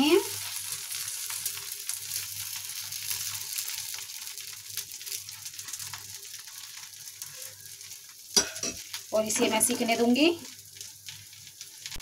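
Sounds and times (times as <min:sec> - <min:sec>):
batter sizzling on a pan: 0:00.0 - 0:12.0
metal spoon scraping a pan: 0:08.4 - 0:09.9.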